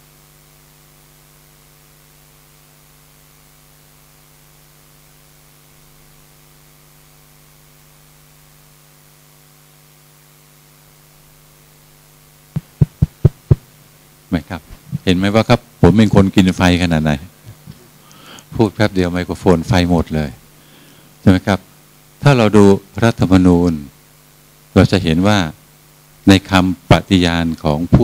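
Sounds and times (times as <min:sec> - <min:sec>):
sound system electrical hum and hiss: 0:00.0 - 0:28.0
microphone taps: 0:12.5 - 0:13.7.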